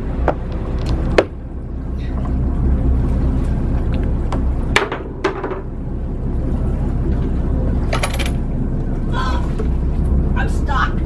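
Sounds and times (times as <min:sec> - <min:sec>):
boat engine rumbling: 0:00.0 - 0:11.0
sharp knocks on boat: 0:04.3 - 0:05.7.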